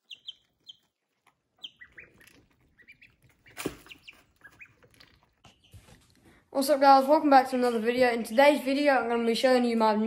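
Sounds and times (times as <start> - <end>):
chicks and ducklings peeping: 0.0 - 6.2.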